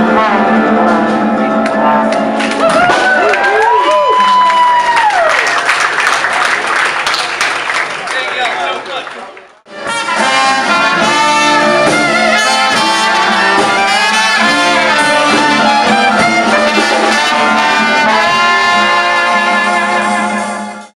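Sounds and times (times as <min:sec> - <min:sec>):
low sustained bass notes: 0:00.0 - 0:02.8
brass band playing jazz: 0:00.0 - 0:03.7, 0:09.7 - 0:20.9.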